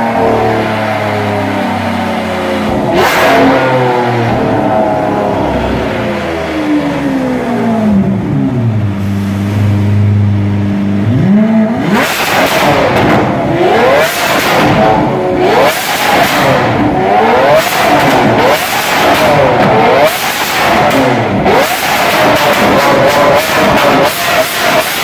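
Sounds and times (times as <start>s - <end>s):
car engine revving: 0.0s - 25.0s
exhaust cracks: 11.2s - 25.0s.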